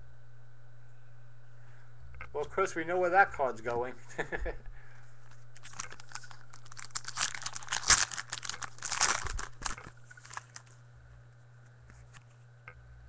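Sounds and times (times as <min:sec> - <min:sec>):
cards and packaging rustling: 0:05.3 - 0:10.8.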